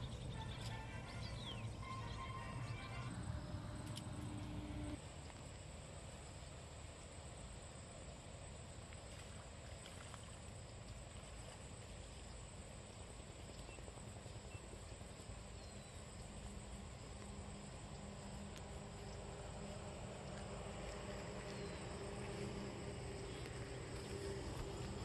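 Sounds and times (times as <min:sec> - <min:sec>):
low rumble: 0:00.0 - 0:05.0
faint ticks: 0:16.0 - 0:25.0.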